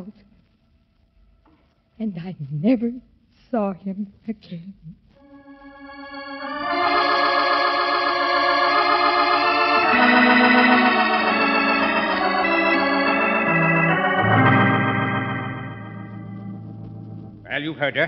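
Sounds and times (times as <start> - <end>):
organ chords: 5.2 - 18.0.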